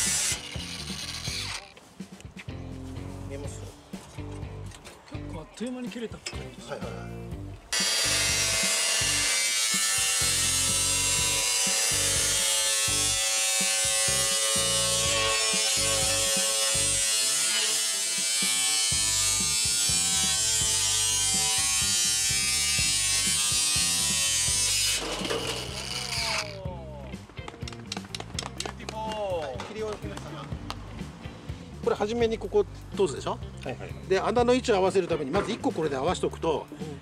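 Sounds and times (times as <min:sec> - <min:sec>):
power tool motor whining: 0:00.0 - 0:01.8, 0:07.8 - 0:26.6
background music: 0:00.0 - 0:37.0.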